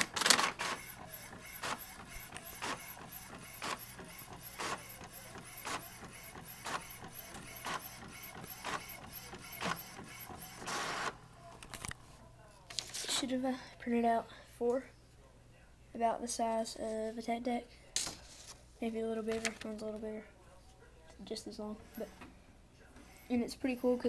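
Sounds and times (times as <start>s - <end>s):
print head clicking: 0.0s - 11.2s
inkjet printer printing: 0.0s - 11.3s, 21.8s - 22.3s, 22.9s - 24.0s
printer whirring: 0.0s - 11.4s.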